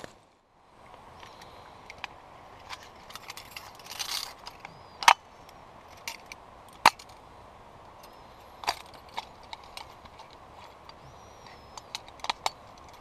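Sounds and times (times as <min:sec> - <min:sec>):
metal lantern clicking: 0:08.6 - 0:13.0.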